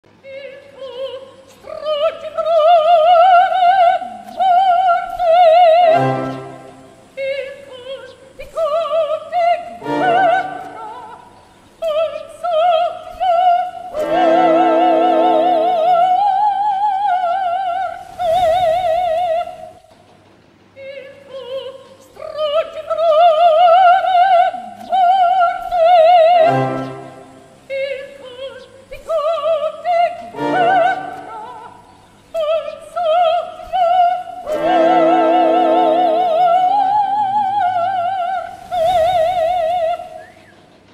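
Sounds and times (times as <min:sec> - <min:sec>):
operatic singing high voice: 0:00.2 - 0:19.8, 0:20.8 - 0:40.3.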